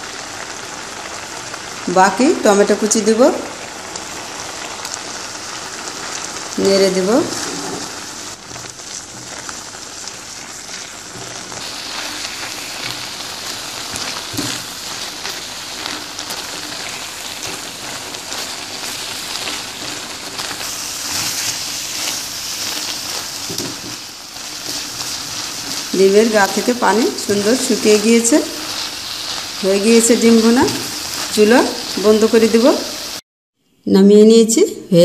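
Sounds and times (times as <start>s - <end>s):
sauce bubbling and sizzling in pan: 0.0s - 33.2s
spatula scraping pan: 7.2s - 32.9s.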